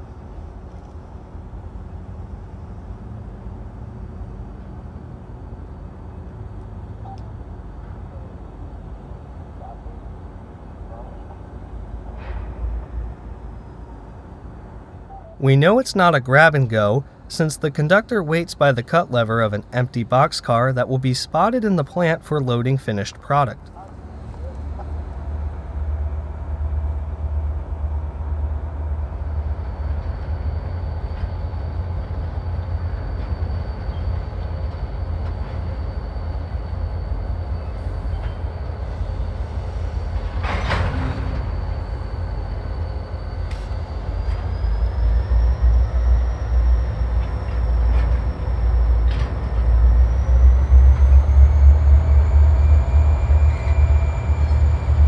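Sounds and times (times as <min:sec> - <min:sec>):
locomotive engine rumble: 0:00.0 - 0:55.0
thin high whine: 0:15.1 - 0:55.0.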